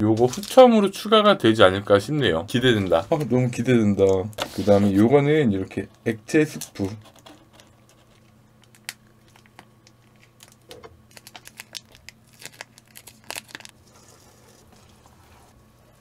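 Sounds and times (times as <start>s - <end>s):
plastic sachets crinkling and tearing: 0.3s - 0.7s, 6.6s - 14.7s.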